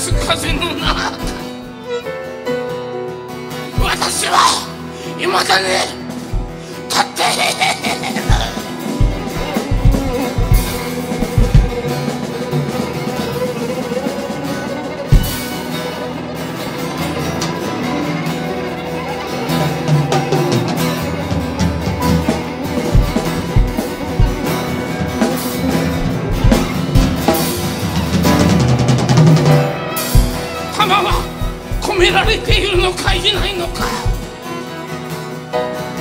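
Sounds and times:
heavy drum hits: 0:00.0 - 0:01.8, 0:06.3 - 0:06.7, 0:08.3 - 0:11.9, 0:15.1 - 0:15.5, 0:23.0 - 0:24.7, 0:25.8 - 0:27.4, 0:30.1 - 0:30.5, 0:31.1 - 0:34.3
instrumental band music: 0:00.0 - 0:36.0.

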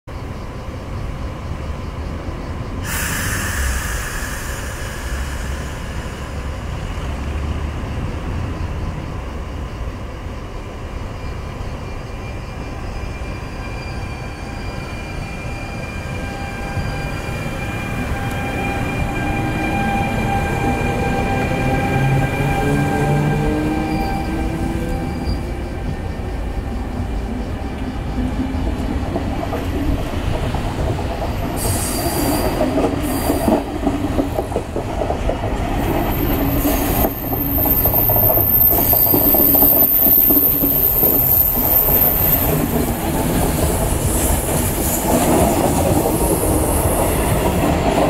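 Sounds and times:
train low rumble: 0:00.1 - 0:48.0
burst of hiss: 0:02.8 - 0:06.7, 0:31.6 - 0:33.7.

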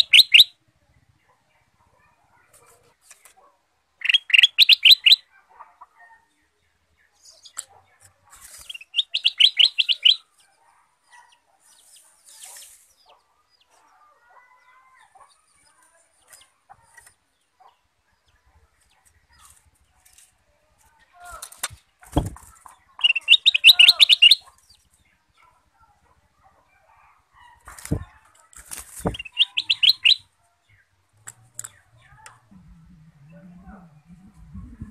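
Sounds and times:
bird singing ringing notes: 0:08.8 - 0:10.3, 0:23.0 - 0:24.9, 0:29.1 - 0:30.3.

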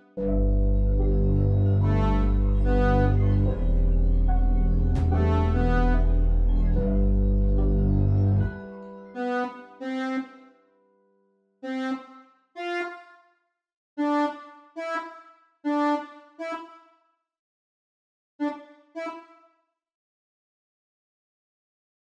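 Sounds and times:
synth keys melody: 0:00.0 - 0:10.8.

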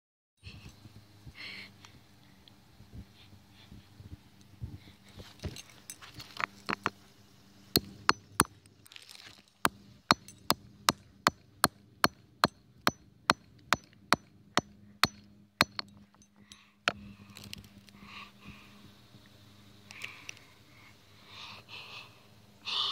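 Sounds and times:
hammer striking plastic on asphalt: 0:07.8 - 0:08.6, 0:09.7 - 0:16.0.

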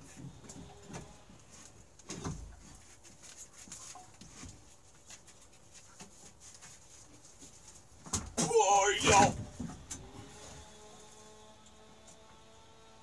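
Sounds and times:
clunks and scrapes of engine parts: 0:00.0 - 0:08.4, 0:09.4 - 0:11.2.

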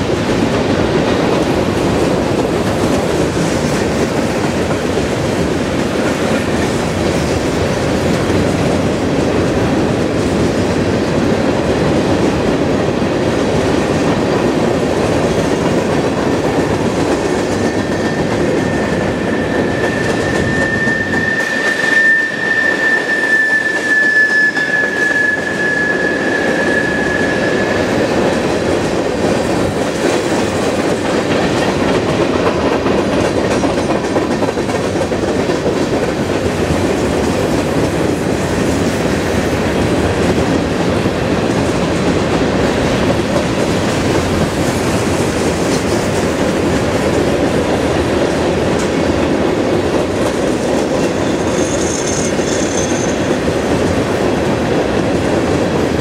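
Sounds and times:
train rolling over steel bridge: 0:00.0 - 0:56.0
high wheel squeal: 0:17.6 - 0:28.2, 0:51.0 - 0:53.4.

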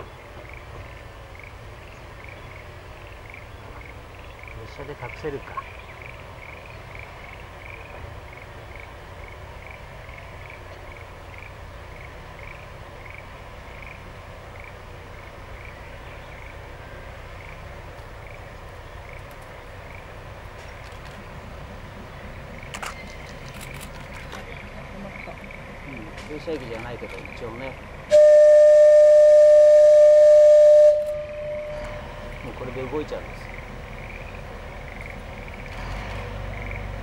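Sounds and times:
low steady rumble: 0:00.0 - 0:37.0
high chirping call: 0:28.1 - 0:32.6.

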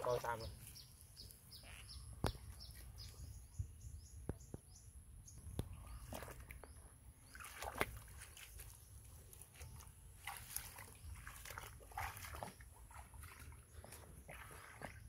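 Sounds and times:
feet wading in shallow water: 0:05.4 - 0:15.0
frame dragged through water: 0:07.3 - 0:15.0.

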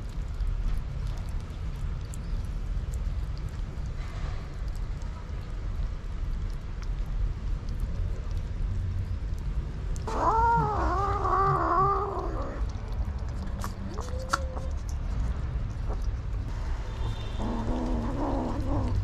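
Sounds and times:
steady low rumble: 0:00.0 - 0:19.0
kitten crying: 0:10.1 - 0:12.7, 0:13.6 - 0:14.9.

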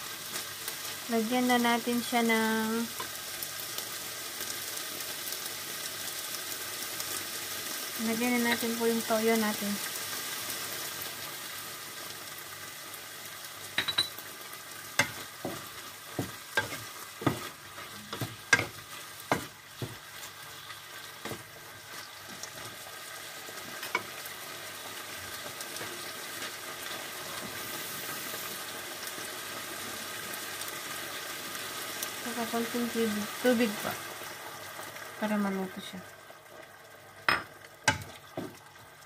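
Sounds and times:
meat sizzling in a frying pan: 0:00.0 - 0:39.0
spatula knocking against a pan: 0:15.0 - 0:17.5.

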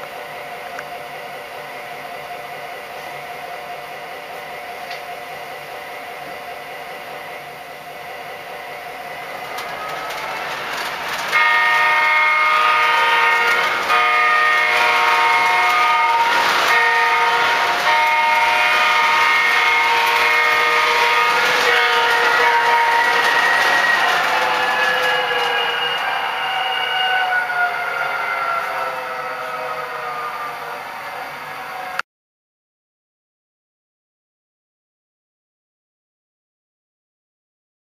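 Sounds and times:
model diesel locomotive running: 0:00.0 - 0:32.0
multi-note air horn blasts: 0:11.3 - 0:24.1.

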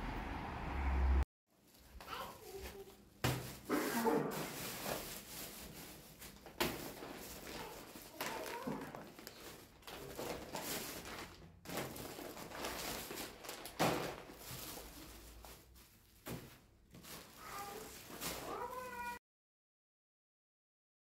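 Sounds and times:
plastic bags rustling: 0:01.6 - 0:19.2.

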